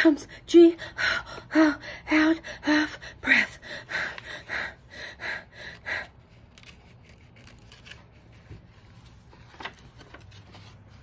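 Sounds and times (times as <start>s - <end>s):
woman panting: 0.0s - 6.2s.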